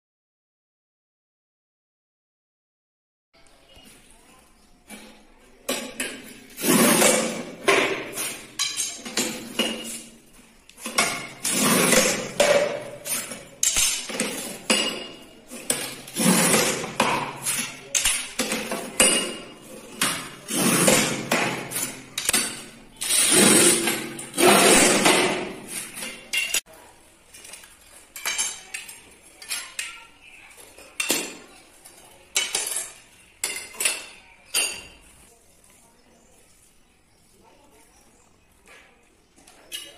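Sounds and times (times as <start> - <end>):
tile cutter scraping strokes: 6.5 - 9.1, 10.9 - 14.6, 15.5 - 18.7, 20.0 - 26.2.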